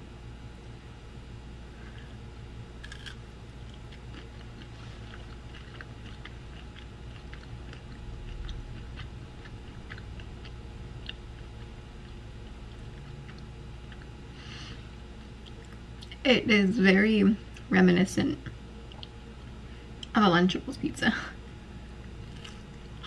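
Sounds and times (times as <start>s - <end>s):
person chewing food: 2.8s - 14.4s, 18.9s - 19.2s, 22.0s - 23.0s.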